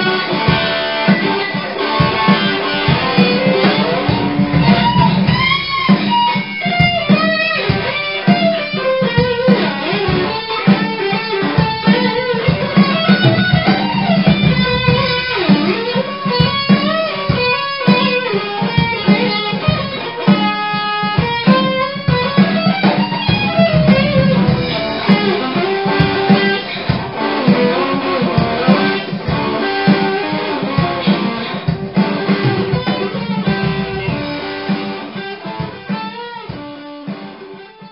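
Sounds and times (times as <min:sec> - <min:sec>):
electric guitar lead with bends: 0:00.0 - 0:37.9
low accompaniment: 0:02.0 - 0:06.2, 0:12.8 - 0:15.8, 0:21.6 - 0:35.9.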